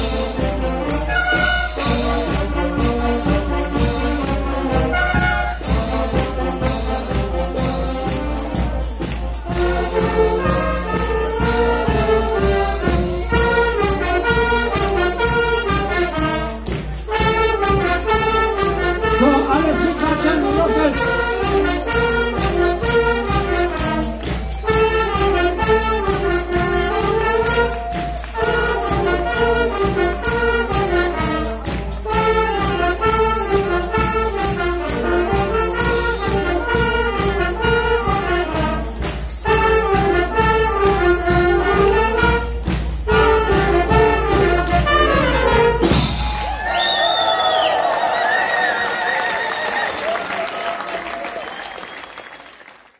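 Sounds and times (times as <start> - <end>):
trumpets and saxophones playing: 0.0 - 48.3
steady beat: 17.2 - 31.3.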